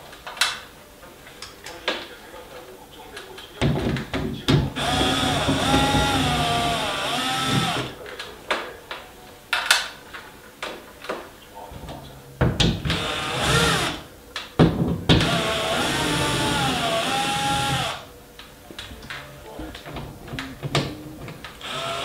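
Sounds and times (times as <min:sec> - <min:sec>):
cordless drill whirring: 0:04.8 - 0:08.0, 0:12.9 - 0:14.0, 0:15.2 - 0:18.0, 0:21.6 - 0:22.0.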